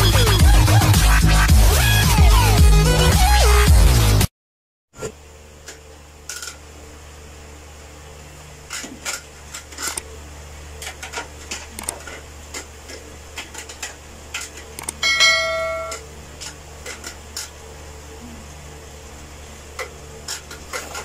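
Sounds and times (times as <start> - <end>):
steady low hum: 5.0 - 21.0
keyboard and mouse clicks: 11.5 - 12.1, 13.6 - 15.0
short ringing tone: 15.0 - 16.0.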